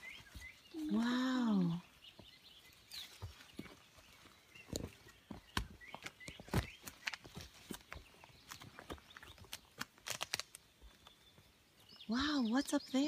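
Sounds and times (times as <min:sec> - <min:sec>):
rustling leaves and undergrowth: 0:00.0 - 0:13.0
twigs snapping underfoot: 0:06.5 - 0:11.2.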